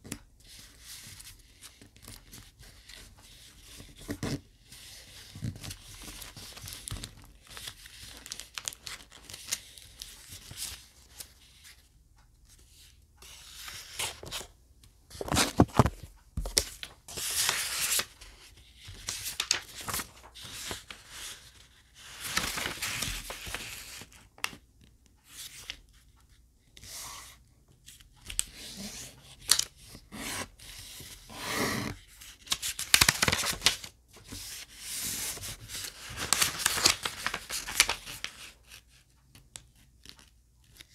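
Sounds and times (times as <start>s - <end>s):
paper rustling and crinkling: 0.1s - 11.8s, 15.1s - 24.6s, 28.2s - 38.9s.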